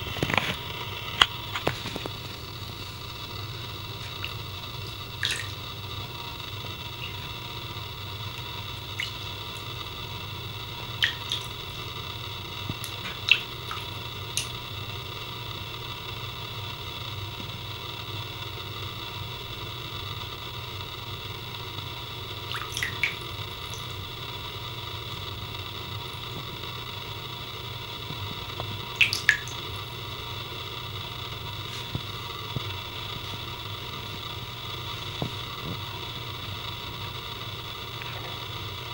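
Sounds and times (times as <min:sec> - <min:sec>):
steady background hum: 0:00.0 - 0:38.9
water drops splashing in bathtub: 0:04.0 - 0:05.8, 0:08.8 - 0:09.9, 0:11.0 - 0:11.9, 0:12.6 - 0:14.7, 0:22.4 - 0:24.0, 0:28.9 - 0:29.9.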